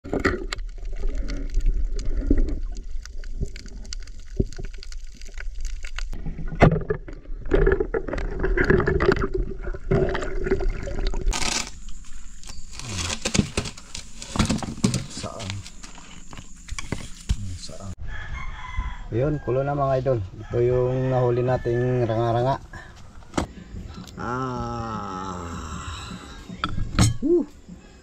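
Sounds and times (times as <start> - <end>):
muffled underwater water movement: 0.0 - 11.3
bubbling: 0.0 - 11.4
small clicks and crackles: 0.2 - 6.2.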